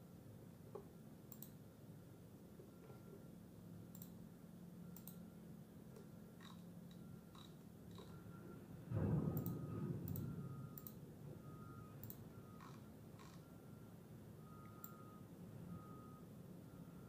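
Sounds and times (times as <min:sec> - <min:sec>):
low steady hum: 0:00.0 - 0:17.0
computer mouse clicks: 0:00.7 - 0:01.6, 0:03.9 - 0:04.2, 0:05.0 - 0:05.2, 0:06.0 - 0:08.1, 0:09.4 - 0:11.0, 0:12.0 - 0:13.4.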